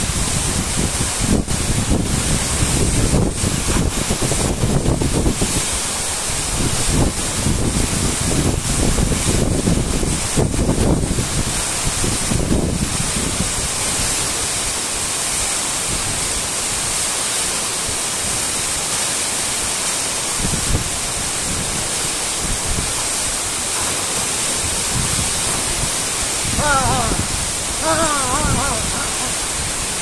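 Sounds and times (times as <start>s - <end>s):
wind rumble on microphone: 0.0s - 14.4s, 20.4s - 23.4s, 24.5s - 30.0s
waterfall rushing: 0.0s - 30.0s.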